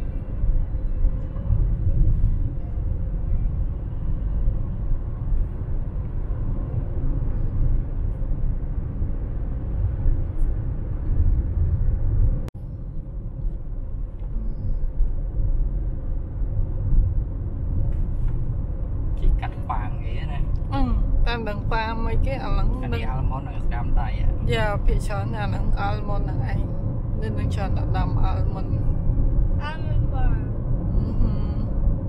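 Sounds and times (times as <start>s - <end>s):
low rumbling noise: 0.0s - 32.0s.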